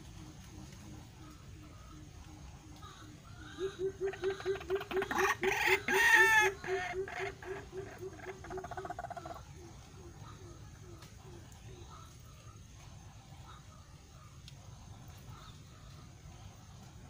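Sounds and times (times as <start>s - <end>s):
bird low hooting notes: 0.0s - 17.0s
bird harsh croaking call: 0.2s - 12.2s.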